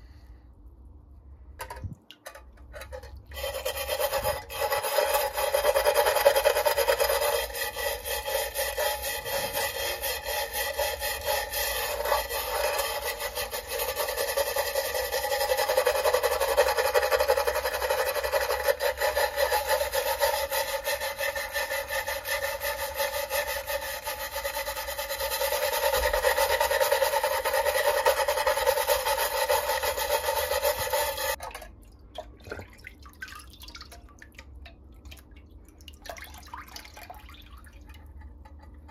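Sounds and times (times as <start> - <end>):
metal file scraping metal: 2.8 - 31.4
faint water sounds: 31.4 - 38.9.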